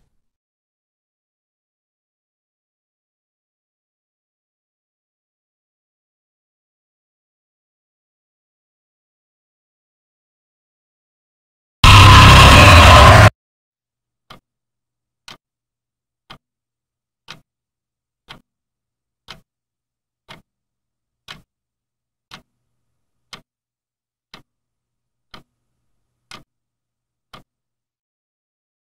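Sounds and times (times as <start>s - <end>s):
harsh noise blast: 11.8s - 13.3s
clock ticking: 18.2s - 18.5s, 19.2s - 19.5s, 20.2s - 20.5s, 21.2s - 21.5s, 22.3s - 22.5s, 23.3s - 23.5s, 24.3s - 24.5s, 25.3s - 25.7s, 26.3s - 26.5s, 27.3s - 27.5s.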